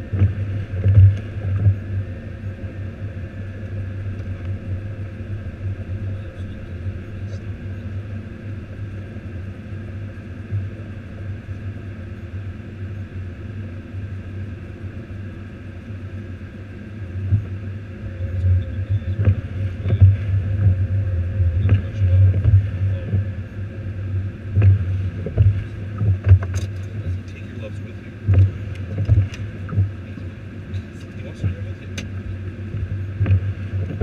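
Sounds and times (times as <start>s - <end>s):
vehicle rumbling through snow: 0.0s - 8.7s, 17.1s - 34.0s.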